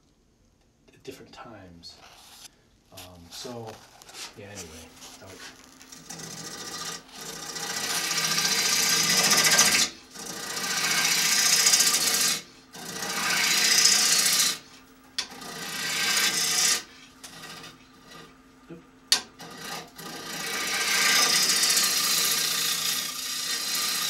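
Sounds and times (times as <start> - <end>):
lathe gouge cutting wood: 5.4 - 18.4, 19.1 - 24.0.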